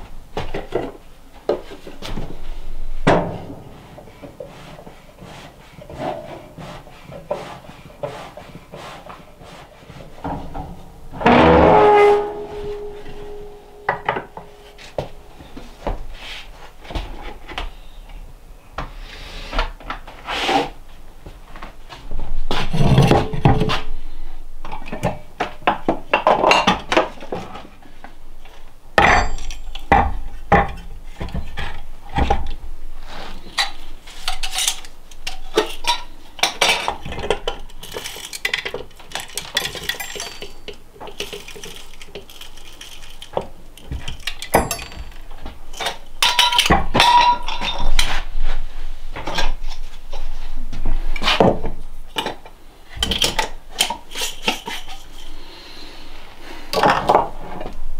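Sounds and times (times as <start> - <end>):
utensils and dishes clinking: 29.0 - 30.0, 33.6 - 48.2.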